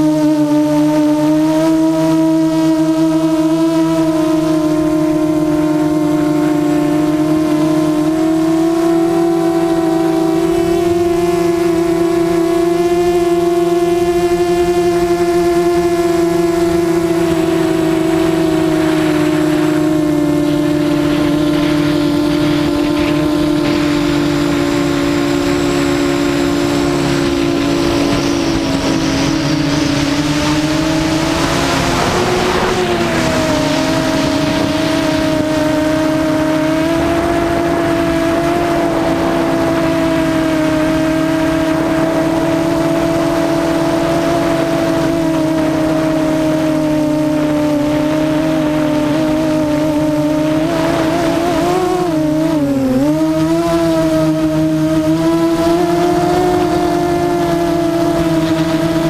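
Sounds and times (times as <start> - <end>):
drone motors whining: 0.0 - 59.0
rush of air noise: 9.0 - 45.8.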